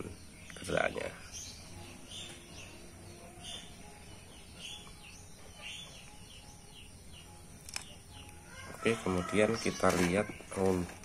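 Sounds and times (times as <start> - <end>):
small bird chirping: 0.0 - 11.0
sharp click: 7.6 - 8.4.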